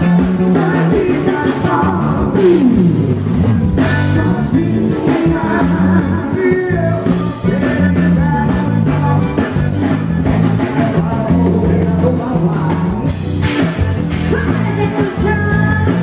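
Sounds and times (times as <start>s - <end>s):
band with accordion: 0.0s - 16.0s
woman singing: 14.3s - 16.0s.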